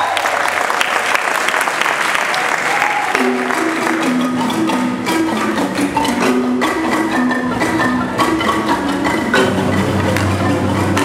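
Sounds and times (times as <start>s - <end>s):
marimba band music: 2.7s - 11.0s.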